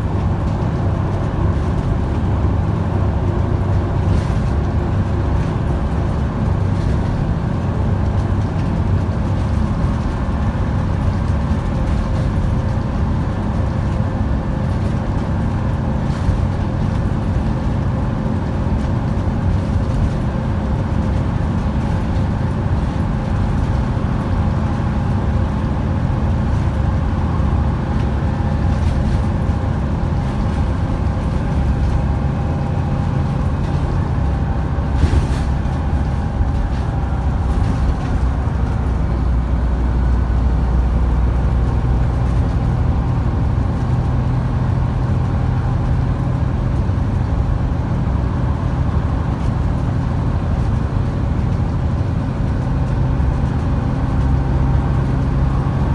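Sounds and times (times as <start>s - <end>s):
bus diesel engine pulling: 0.0s - 55.9s.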